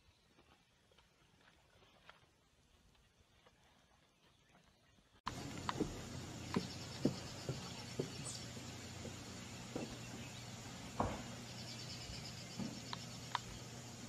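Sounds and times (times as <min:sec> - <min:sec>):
small bird chirping: 0:04.2 - 0:13.9.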